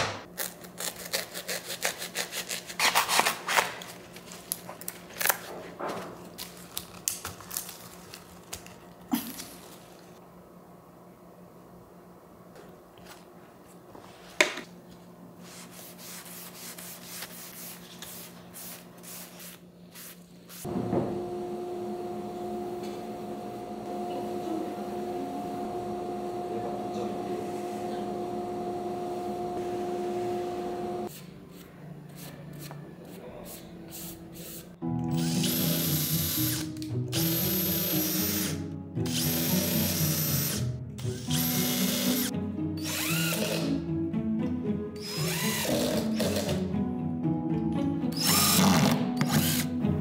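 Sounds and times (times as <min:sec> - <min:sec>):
background music with held notes: 0:34.8 - 0:50.0.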